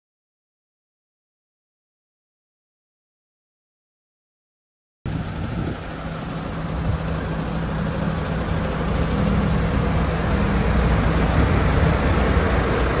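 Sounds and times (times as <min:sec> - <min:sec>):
diesel engine idling: 0:05.1 - 0:13.0.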